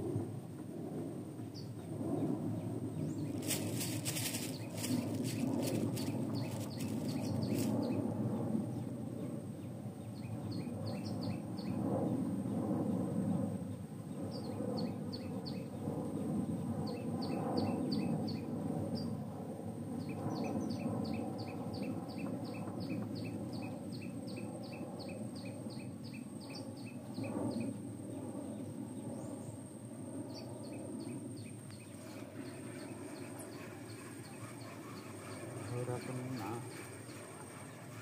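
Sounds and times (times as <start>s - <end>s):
low background rumble: 0.0s - 14.0s, 25.2s - 38.0s
bird chirping: 2.9s - 8.0s, 10.0s - 11.8s, 30.3s - 38.0s.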